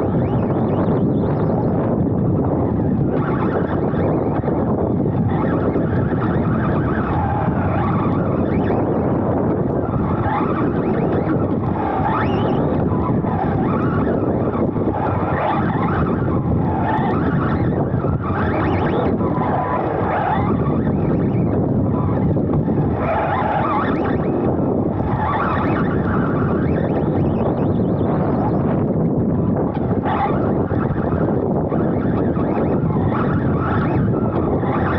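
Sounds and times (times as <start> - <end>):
electric motor whine: 0.0 - 34.9
wind buffeting microphone: 0.0 - 34.9.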